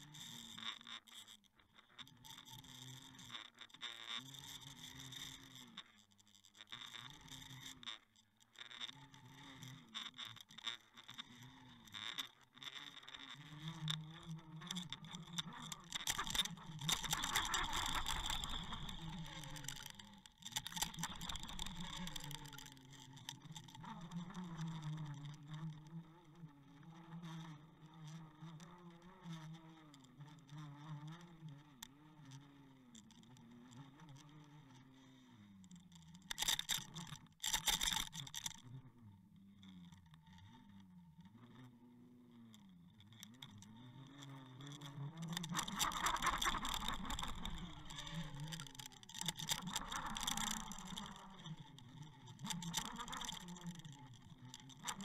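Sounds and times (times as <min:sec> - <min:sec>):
motor running with wavering pitch: 0:13.4 - 0:25.8, 0:44.7 - 0:55.0.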